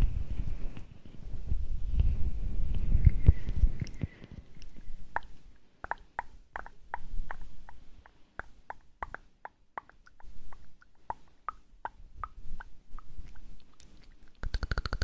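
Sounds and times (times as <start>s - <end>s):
wet mouth pops and smacks: 3.1s - 15.0s.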